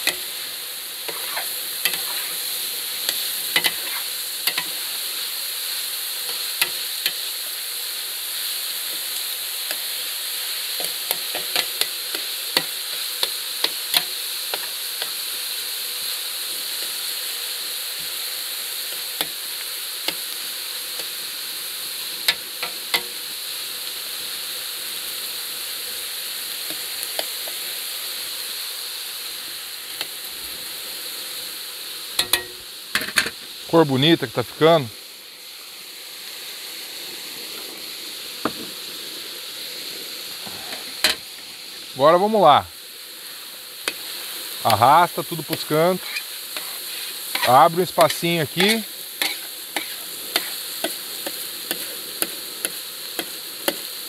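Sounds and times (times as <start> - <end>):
vegetables sizzling in a pan: 0.0 - 54.0
utensil scraping a pan: 1.1 - 2.4, 3.1 - 5.0, 45.5 - 52.0.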